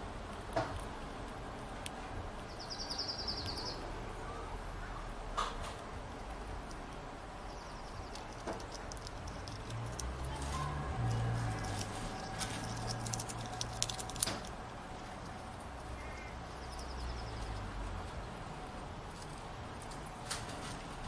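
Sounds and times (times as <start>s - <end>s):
squirrel gnawing food: 0.0s - 4.1s, 4.8s - 21.0s
bird chirp: 2.5s - 3.9s, 7.4s - 8.6s, 15.9s - 17.7s.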